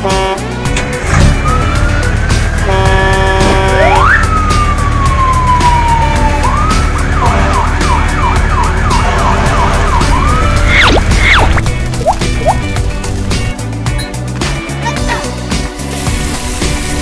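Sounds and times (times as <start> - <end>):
background music: 0.0 - 17.0
siren wailing and yelping: 3.9 - 13.0.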